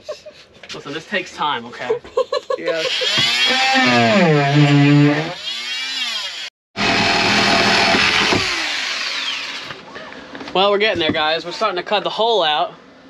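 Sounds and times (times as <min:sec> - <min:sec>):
power tool cutting panel: 0:02.9 - 0:09.8.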